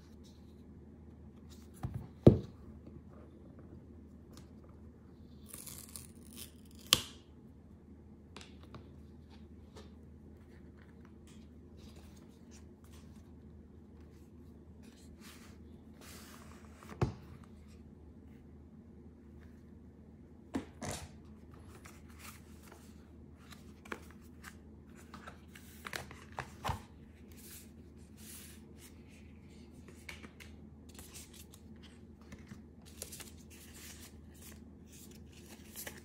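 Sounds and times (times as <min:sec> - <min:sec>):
cardboard seal strips tearing: 0:05.4 - 0:07.1.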